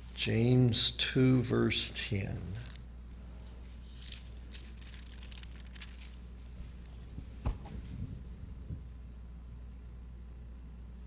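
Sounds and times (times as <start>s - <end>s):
steady low hum: 0.0s - 11.0s
pages rustling and turning: 3.4s - 8.1s
soft thump: 7.4s - 8.2s.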